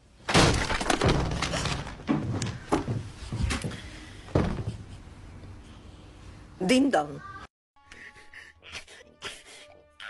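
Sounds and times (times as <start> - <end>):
door banging and rattling: 0.3 - 4.9.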